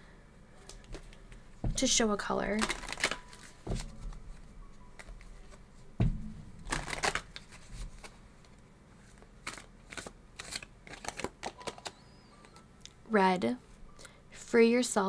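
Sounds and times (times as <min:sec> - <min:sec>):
cards being shuffled: 0:00.6 - 0:01.4, 0:02.4 - 0:04.3, 0:06.6 - 0:12.6.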